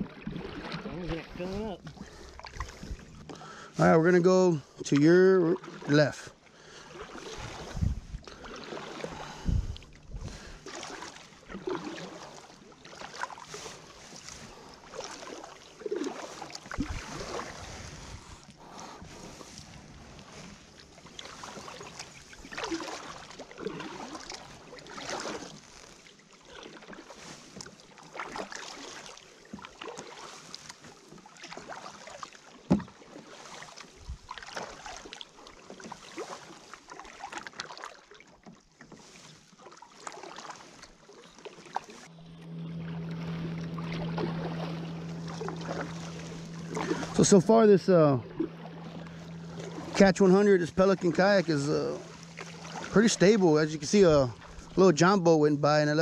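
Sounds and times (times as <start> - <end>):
water splashing and dripping: 0.0 - 3.4, 21.1 - 38.6, 43.1 - 47.6
kayak paddle strokes in water: 0.0 - 56.0.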